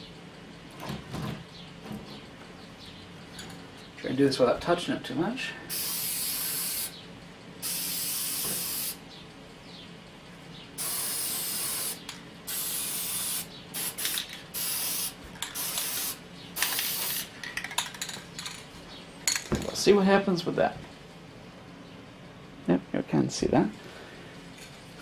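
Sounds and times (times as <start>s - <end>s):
aerosol spray can hissing: 5.7s - 7.0s, 7.6s - 9.0s, 10.8s - 17.3s.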